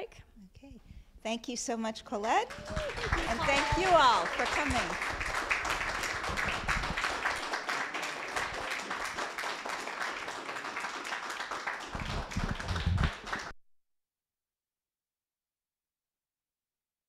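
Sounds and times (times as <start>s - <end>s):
audience clapping: 2.3s - 13.6s.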